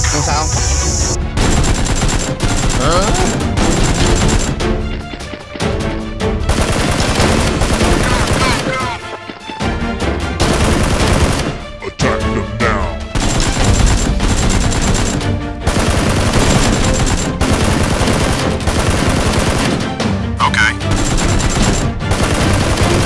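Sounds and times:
background music: 0:00.0 - 0:23.0
rapid automatic gunfire effects: 0:01.3 - 0:04.7, 0:06.5 - 0:08.8, 0:10.4 - 0:11.6, 0:13.2 - 0:20.0, 0:20.9 - 0:23.0.

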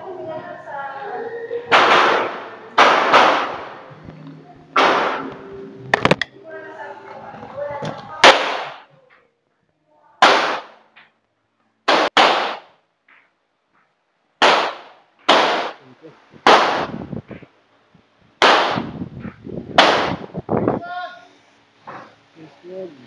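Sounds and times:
pistol shots: 0:01.7 - 0:03.9, 0:04.8 - 0:05.4, 0:08.2 - 0:08.9, 0:10.2 - 0:10.8, 0:11.9 - 0:12.8, 0:14.4 - 0:15.8, 0:16.4 - 0:16.9, 0:18.4 - 0:18.9, 0:19.8 - 0:20.2.

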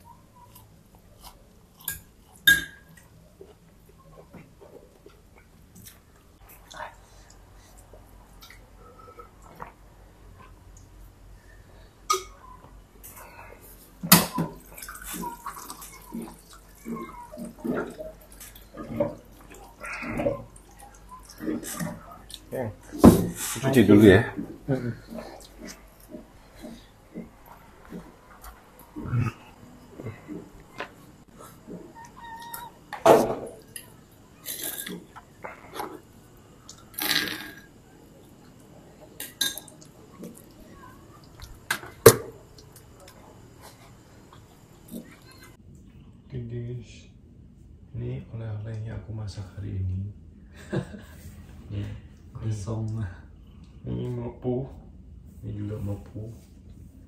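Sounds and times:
mouth eating sounds: 0:24.3 - 0:32.8.

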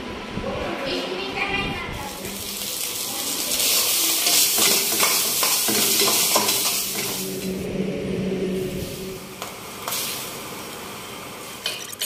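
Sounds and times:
food sizzling in a pan: 0:02.0 - 0:07.5, 0:08.8 - 0:12.0.

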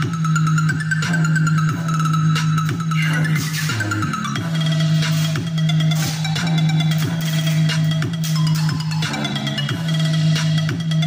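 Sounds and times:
electronic music with sliding bass: 0:00.0 - 0:11.0.

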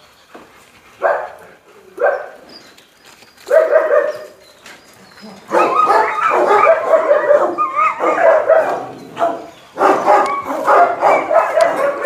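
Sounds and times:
dogs barking and yelping: 0:01.0 - 0:02.8, 0:03.4 - 0:12.0
dogs whining: 0:03.5 - 0:12.0.

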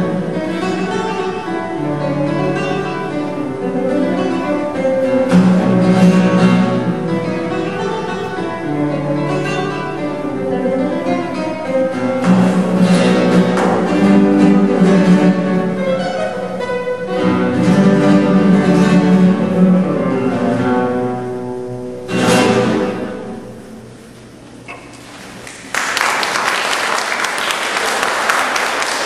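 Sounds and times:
flamenco guitar: 0:00.0 - 0:26.6
audience applause: 0:25.4 - 0:29.0.

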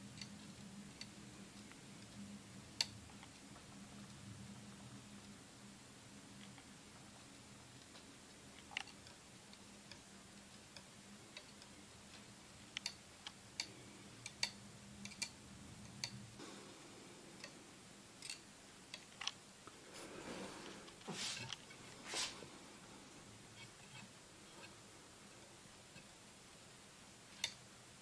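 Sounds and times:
low steady hum: 0:00.0 - 0:28.0
faint small clicks and ticks: 0:00.1 - 0:04.2, 0:06.4 - 0:16.2, 0:27.3 - 0:27.7.

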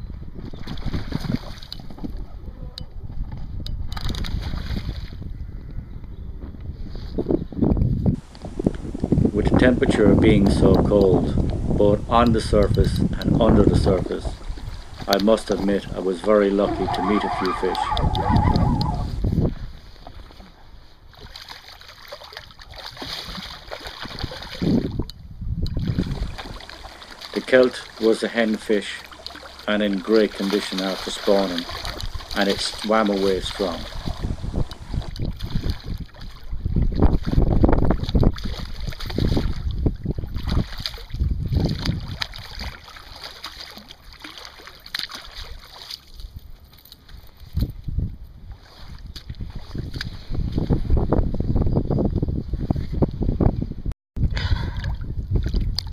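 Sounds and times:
wind buffeting microphone: 0:00.0 - 0:21.3, 0:22.6 - 0:28.2, 0:30.0 - 0:43.3, 0:47.2 - 0:55.9
river water splashing and lapping: 0:00.2 - 0:05.3, 0:08.2 - 0:51.6, 0:54.2 - 0:55.9
fish splashing: 0:14.3 - 0:19.2, 0:21.1 - 0:25.1, 0:25.7 - 0:46.4.

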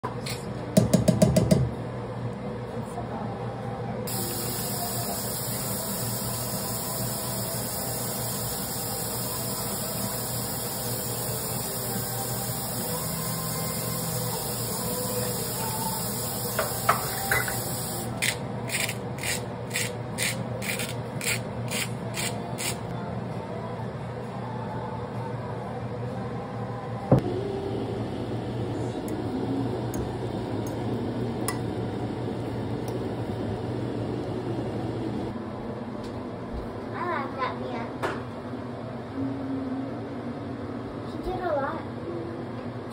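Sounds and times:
spice grinder crunching: 0:18.2 - 0:22.8.

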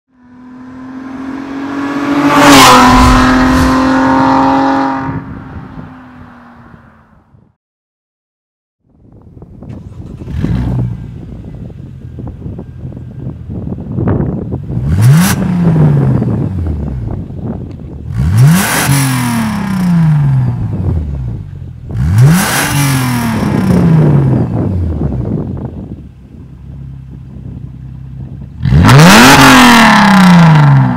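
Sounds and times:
car engine revving: 0:00.3 - 0:06.6, 0:14.7 - 0:25.7, 0:28.2 - 0:30.9
whooshing hit: 0:02.1 - 0:05.8.

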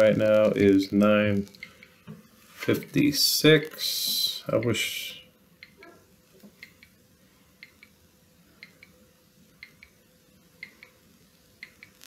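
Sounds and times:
faint steady hum: 0:00.0 - 0:12.0
clock ticking: 0:07.6 - 0:08.0, 0:09.6 - 0:10.0, 0:11.6 - 0:12.0.

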